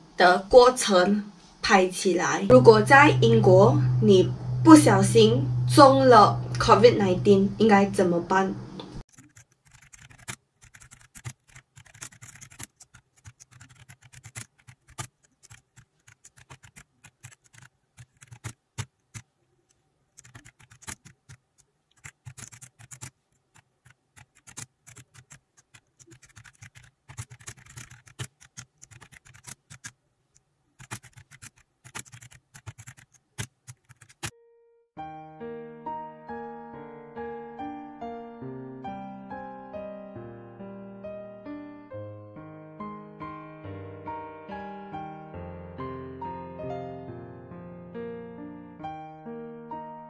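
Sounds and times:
faint low hum: 2.5 - 9.0.

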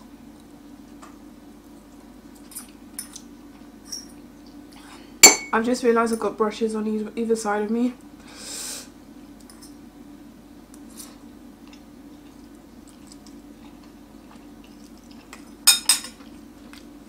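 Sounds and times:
steady low hum: 0.0 - 17.0
quiet chewing: 10.7 - 17.0.

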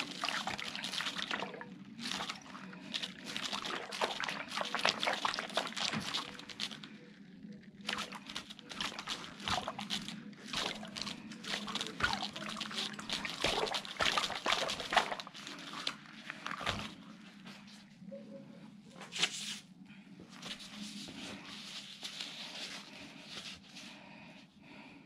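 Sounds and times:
balloon squishing on soap foam: 0.0 - 17.7
low steady hum: 0.0 - 25.0.

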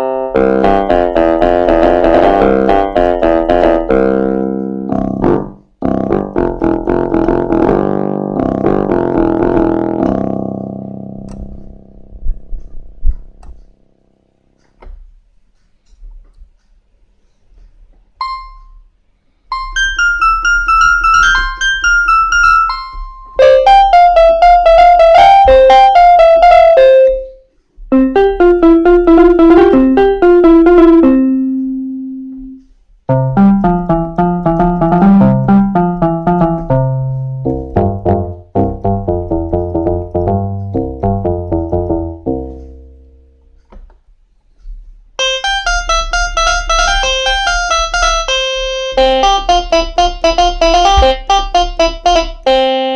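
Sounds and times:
keyboard playing quick notes: 0.0 - 11.8, 19.5 - 43.3, 45.2 - 52.9
sharp clicks and knocks: 43.6 - 44.9, 49.2 - 52.3.

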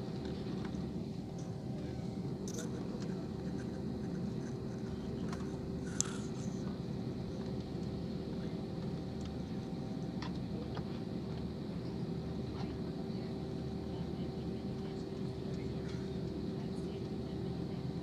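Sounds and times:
jet cabin engine hum: 0.0 - 18.0.

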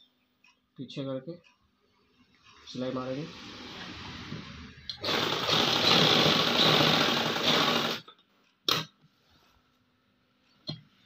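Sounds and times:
industrial sewing machine running: 5.0 - 8.1.

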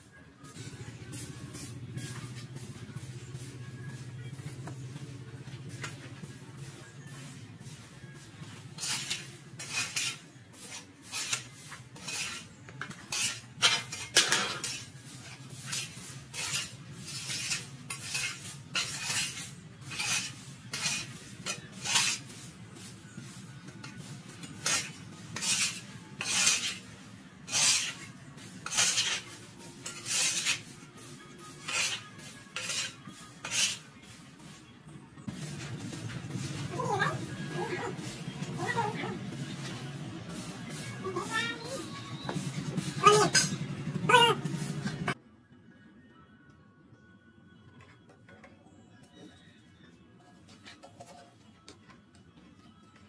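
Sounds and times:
hand tool scraping: 8.6 - 22.4, 23.8 - 33.9.

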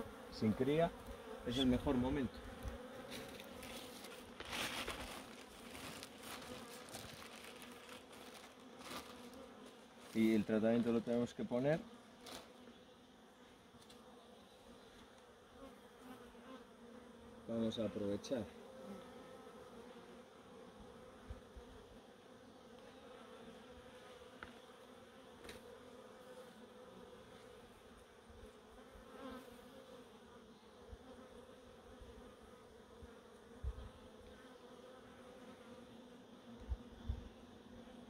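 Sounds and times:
honeybees buzzing: 0.0 - 38.0.

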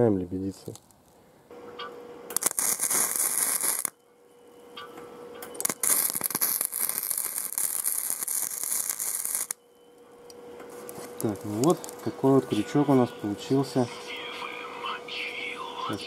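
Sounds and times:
crackling welding arc: 0.0 - 1.1, 2.3 - 4.0, 5.6 - 9.6, 10.9 - 12.2
faint steady hum: 0.0 - 16.0.

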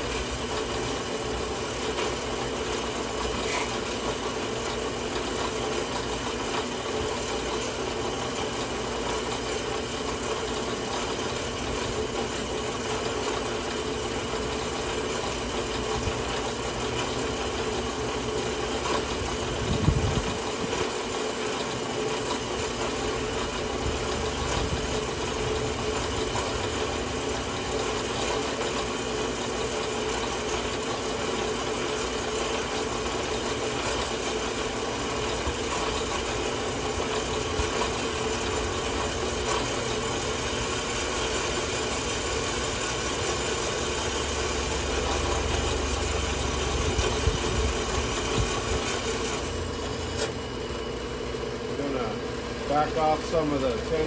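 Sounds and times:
bandsaw cutting metal: 3.2 - 5.5.

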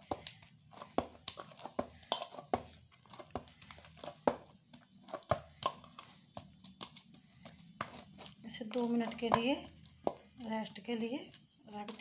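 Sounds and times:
hands smacking dough in bowl: 0.0 - 10.6.

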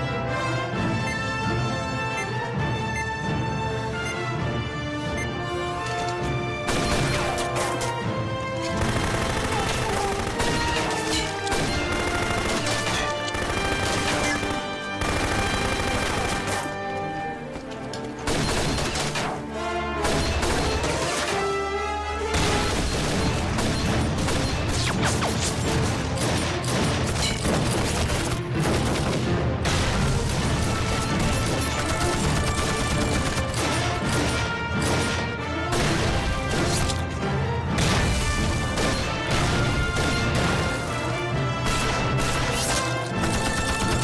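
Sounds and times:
dramatic background music: 0.0 - 44.0
rifle gunfire: 8.8 - 16.7.

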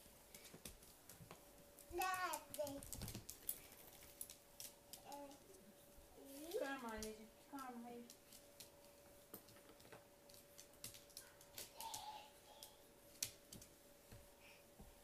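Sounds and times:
faint steady hum: 0.0 - 15.0
dog claws clicking on tile: 1.8 - 5.6, 8.0 - 12.0.

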